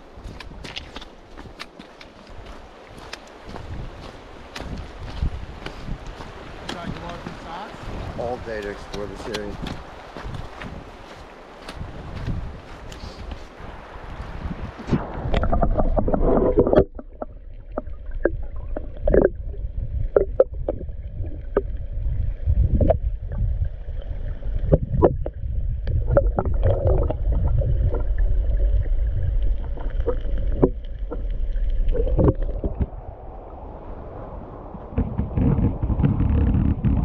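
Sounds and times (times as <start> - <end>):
sharp underwater clicks and knocks: 0.2 - 2.4, 8.5 - 10.4, 15.1 - 19.4, 20.1 - 21.7, 24.6 - 28.2, 29.4 - 33.0, 34.9 - 37.0
muffled underwater water rumble: 13.6 - 37.0.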